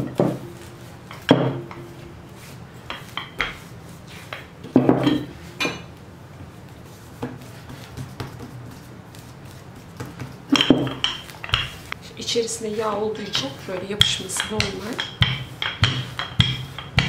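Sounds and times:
rolling pin rolling dough: 0.0s - 17.0s
rolling pin knocking on counter: 10.0s - 11.9s, 13.2s - 17.0s.

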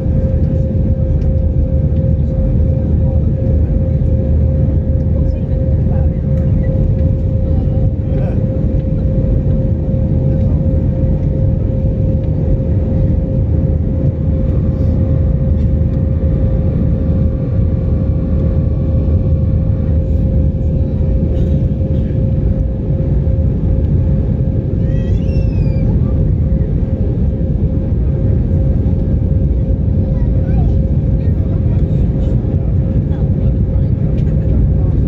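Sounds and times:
jet engines rumbling: 0.0s - 35.0s.

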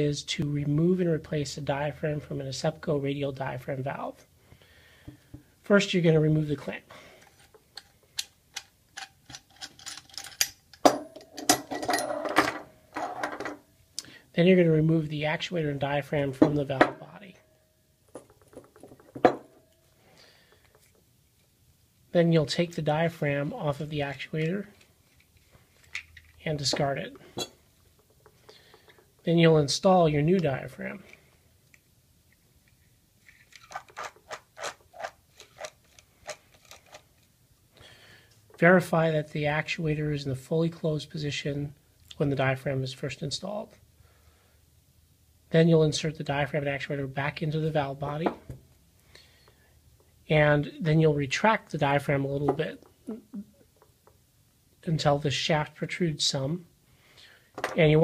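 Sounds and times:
metal clamp clattering: 7.4s - 13.6s.

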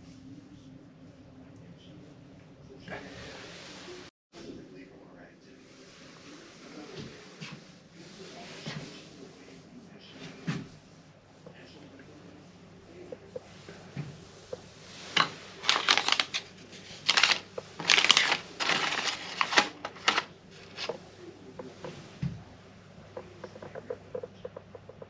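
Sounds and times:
paper packets rustling: 15.0s - 21.0s.

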